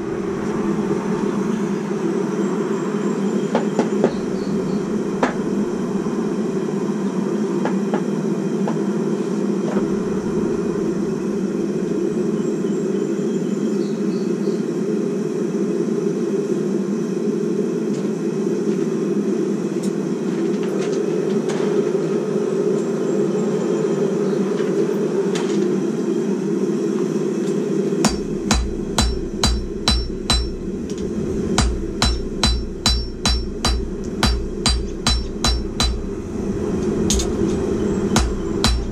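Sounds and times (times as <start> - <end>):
forge humming: 0.0 - 38.9
hammer striking steel on anvil: 28.0 - 30.6, 31.6 - 36.1, 38.2 - 38.9.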